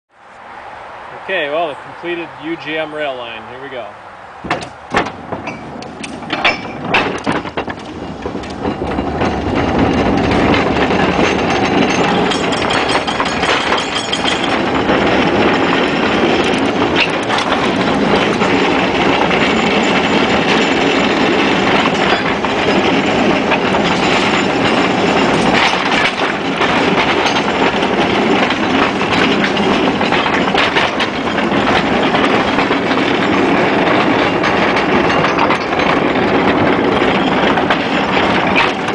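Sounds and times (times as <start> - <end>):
wheels clattering on rail: 1.1 - 38.9
sharp knocks: 4.4 - 38.9.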